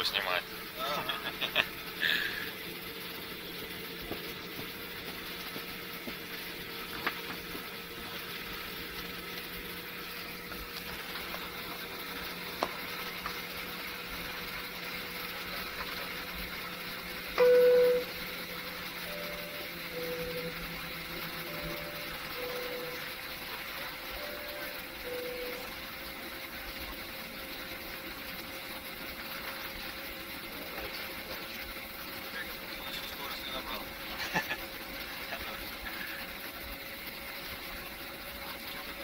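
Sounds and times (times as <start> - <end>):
low hum: 0.0 - 27.7
faint steady whine: 0.0 - 39.0
loud short tone: 17.4 - 18.2.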